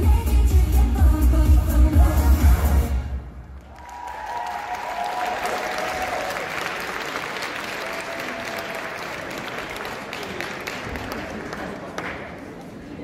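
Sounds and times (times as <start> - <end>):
dance music: 0.0 - 3.4
high cheers: 3.6 - 9.5
audience applauding: 3.6 - 12.6.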